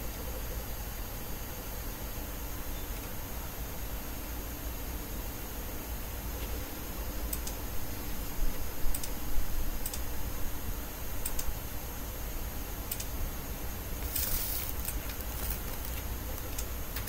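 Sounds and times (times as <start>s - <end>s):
yarn rustle: 14.0s - 16.4s.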